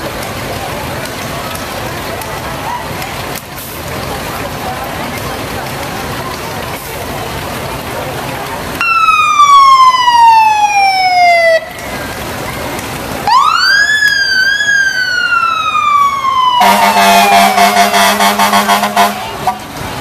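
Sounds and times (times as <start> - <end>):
fire engine siren wailing: 8.6 - 20.0
fire truck horn blast: 16.5 - 19.8.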